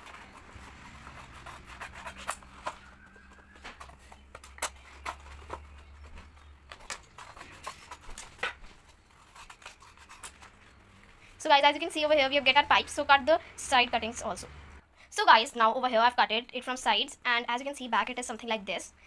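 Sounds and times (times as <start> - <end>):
scissors snipping paper: 0.0 - 10.6.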